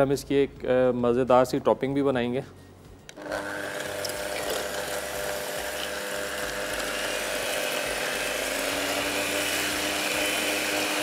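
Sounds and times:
electric beater humming: 3.1 - 11.0.

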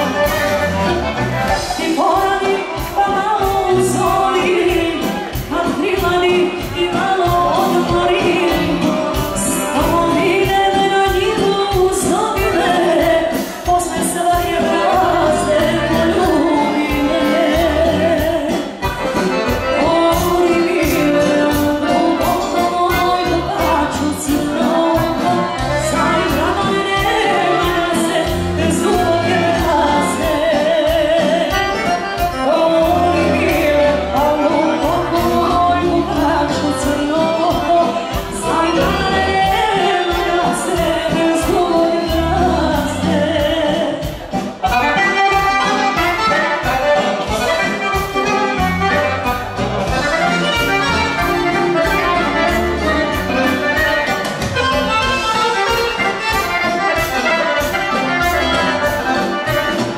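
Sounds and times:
piano accordion: 0.0 - 59.9
woman singing into microphone: 1.5 - 49.3
steady beat: 44.0 - 59.9.

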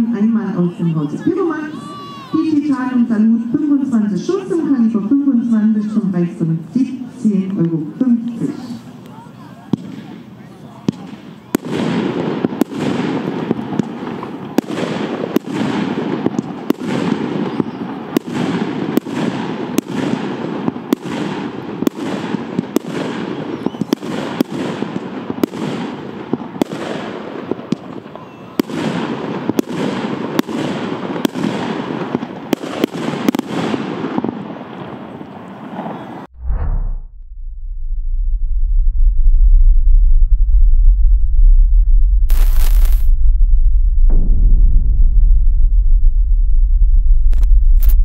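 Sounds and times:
rumbling echo: 36.2 - 48.0.

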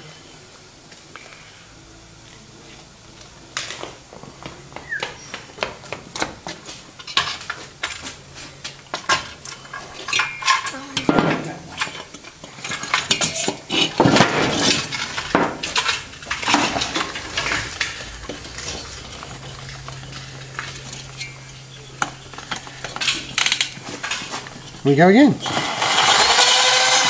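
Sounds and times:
gritty metal scraping and clinking: 7.0 - 26.4.

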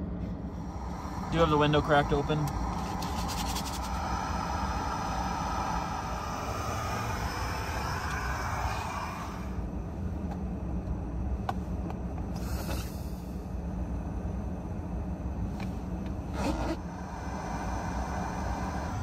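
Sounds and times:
low rumble: 0.0 - 19.0
camping stove burner hissing: 0.5 - 9.6, 12.3 - 13.3, 16.4 - 19.0.

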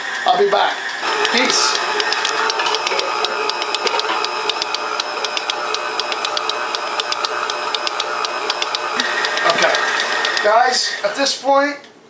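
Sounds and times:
stand mixer motor whirring: 0.0 - 11.2
rapid regular clicking: 1.0 - 10.5.

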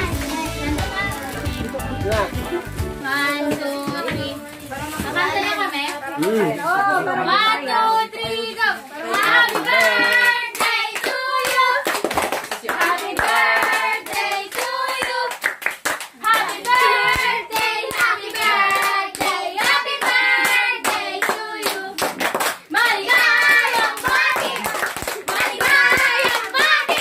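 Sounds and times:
group singing together: 9.0 - 15.4, 16.2 - 27.0.

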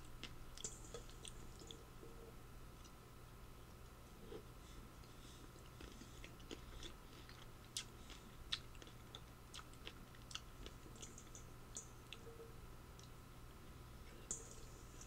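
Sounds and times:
person chewing food: 5.0 - 12.4.

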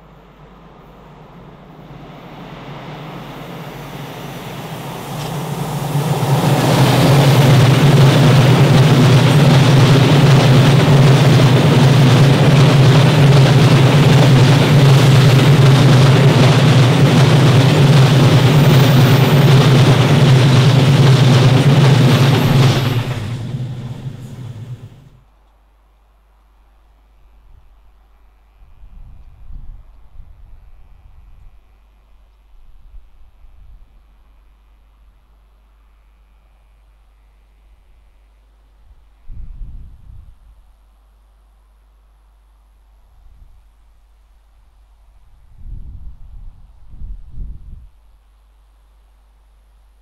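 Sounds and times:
steady low drone: 0.0 - 25.2
train wheels rumbling on rails: 0.0 - 25.2.

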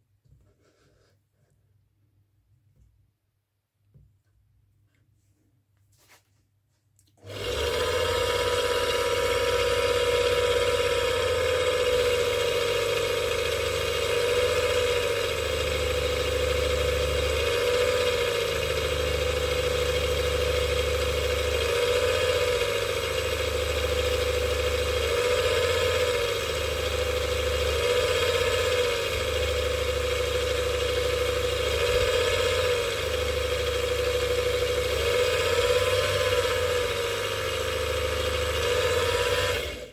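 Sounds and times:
lathe motor whining: 7.2 - 39.9.

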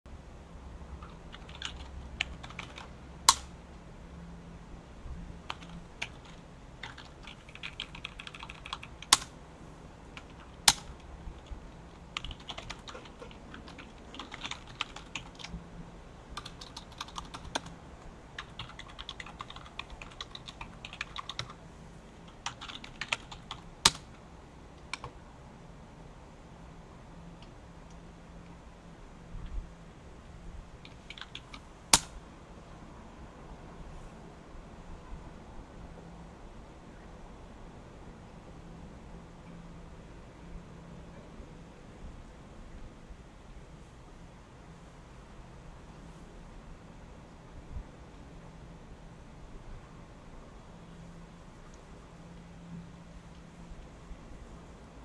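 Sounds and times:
loud keyboard clicks: 1.0 - 3.5, 5.5 - 9.3, 10.2 - 11.5, 12.1 - 15.5, 16.4 - 17.7, 18.4 - 21.6, 22.3 - 24.1, 24.8 - 25.2, 30.8 - 32.1
typing on computer keyboard: 1.0 - 3.5, 5.5 - 9.3, 10.2 - 15.6, 16.4 - 17.7, 18.4 - 21.6, 22.3 - 24.1, 30.8 - 32.1.

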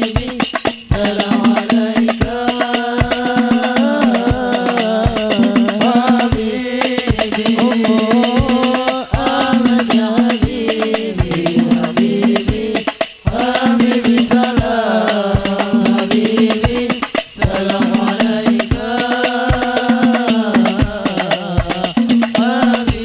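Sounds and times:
devotional singing: 0.0 - 23.0
hand-struck frame drums: 0.0 - 23.0.

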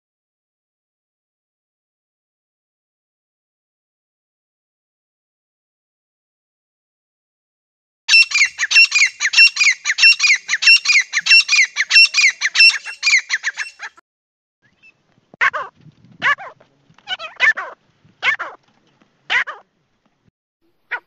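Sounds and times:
bird calling high repeated notes: 8.1 - 14.0.

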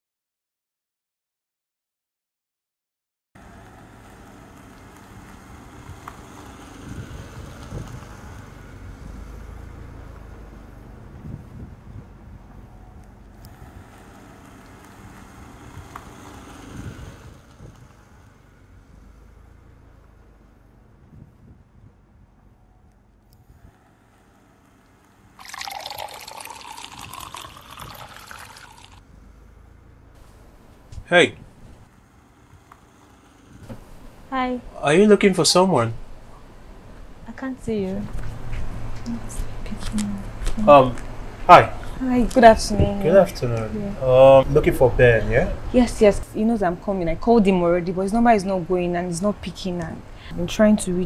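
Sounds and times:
wind buffeting microphone: 6.8 - 8.4, 11.0 - 12.6
water pouring into mug: 25.4 - 29.0.

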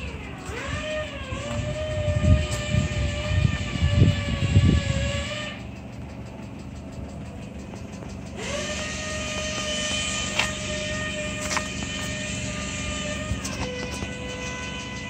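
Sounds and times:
low rumbling noise: 0.0 - 15.0
steady machine whine: 0.0 - 15.0.

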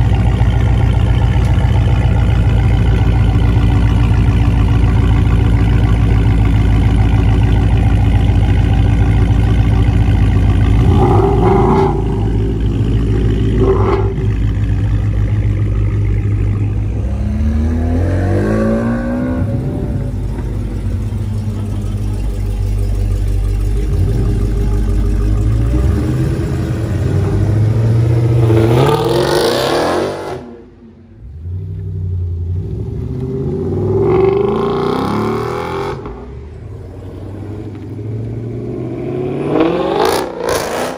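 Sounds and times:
car exhausts idling loudly: 0.0 - 29.4
car pulling away revving: 0.0 - 40.9.

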